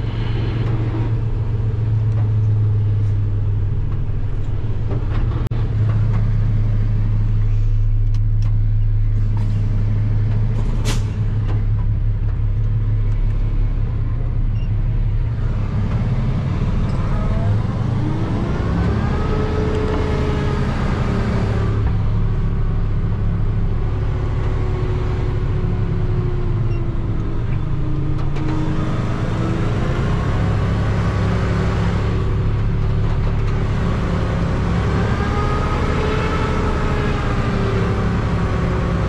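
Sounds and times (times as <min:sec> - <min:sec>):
truck engine running: 0:00.0 - 0:39.0.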